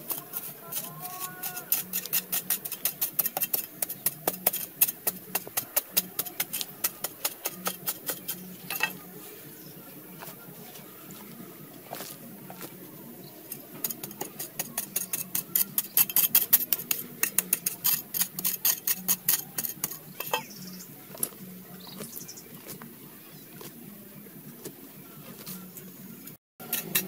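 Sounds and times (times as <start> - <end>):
metal blade striking stony soil: 0.0 - 9.0, 13.5 - 20.6, 26.6 - 27.0
hand scraping earth and pebbles: 0.0 - 27.0.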